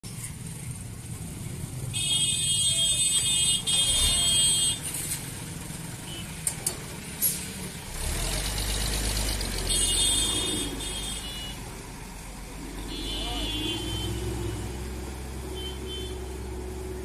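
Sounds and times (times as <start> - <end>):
truck engine rumbling: 0.0 - 17.0.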